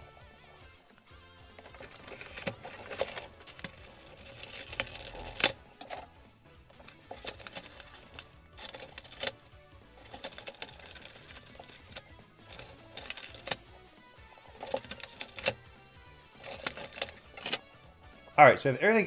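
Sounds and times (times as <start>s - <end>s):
plastic packaging crinkling: 1.6s - 6.1s, 6.7s - 13.7s, 14.5s - 15.6s, 16.4s - 17.6s.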